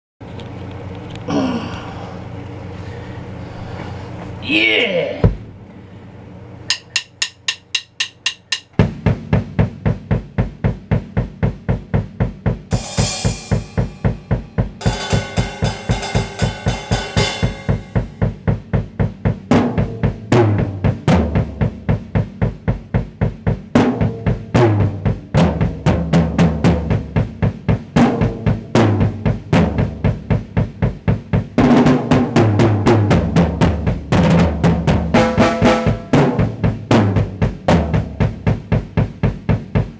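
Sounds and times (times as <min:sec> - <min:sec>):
bass drum and snare beat: 0:06.7 - 0:39.9
cymbal crashes: 0:12.7 - 0:18.4
tom fills: 0:12.7 - 0:18.6.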